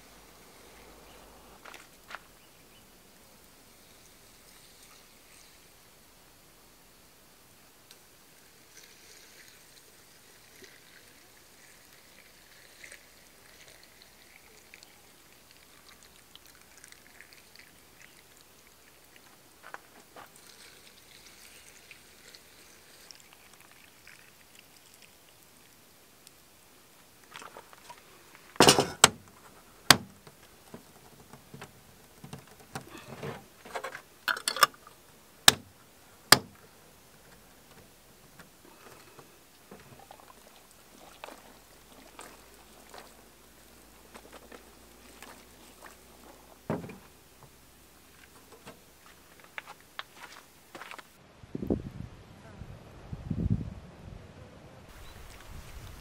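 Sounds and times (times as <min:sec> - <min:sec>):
water trickling into jars: 0:07.8 - 0:50.6
metal lids clicking on glass jars: 0:34.3 - 0:34.9.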